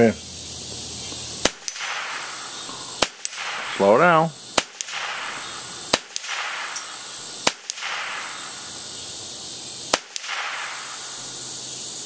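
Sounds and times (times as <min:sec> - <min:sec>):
rifle shots: 0:01.4 - 0:04.0, 0:04.6 - 0:08.8, 0:09.9 - 0:11.3.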